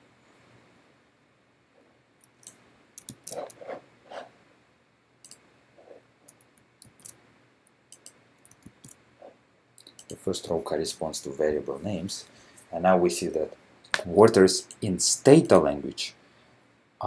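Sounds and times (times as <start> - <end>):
mouse and keyboard clicks: 2.2 - 3.7, 6.3 - 7.2, 7.9 - 9.0.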